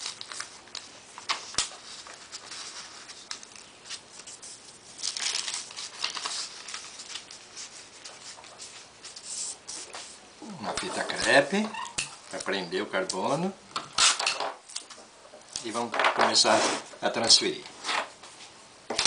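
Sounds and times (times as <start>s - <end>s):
paper rustling and sliding: 0.0s - 10.2s, 15.7s - 17.0s.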